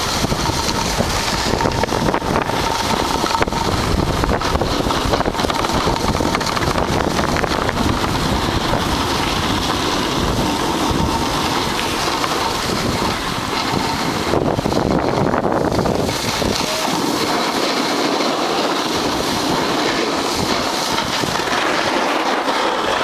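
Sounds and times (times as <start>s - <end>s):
snowboard scraping over snow: 0.0s - 23.0s
wind rushing over microphone: 0.0s - 23.0s.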